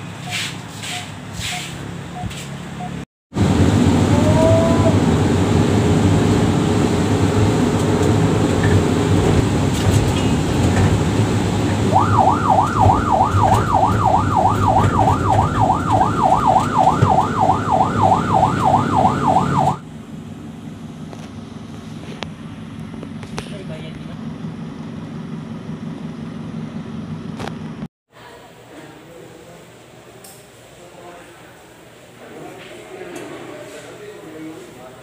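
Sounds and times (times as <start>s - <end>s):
engine and road noise: 0.0s - 27.9s
siren yelping: 11.8s - 19.8s.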